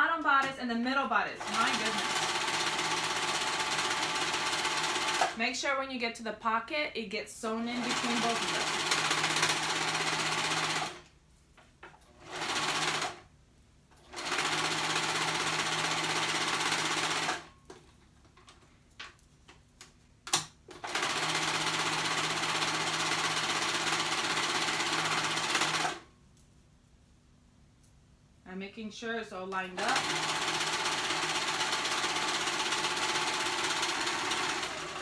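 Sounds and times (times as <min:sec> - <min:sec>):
serger stitching: 0:01.4 - 0:05.4, 0:07.6 - 0:11.0, 0:14.1 - 0:17.5, 0:20.8 - 0:26.0, 0:29.7 - 0:35.0.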